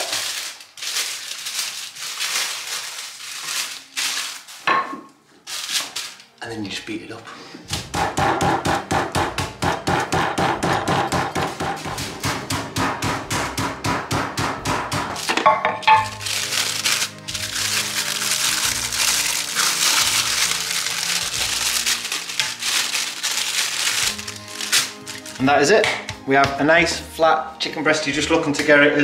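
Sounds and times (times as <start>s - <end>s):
plastic bag crinkling: 0.0s - 4.8s, 5.4s - 6.5s, 15.2s - 25.6s
rolling pin pounding meat: 7.7s - 15.4s.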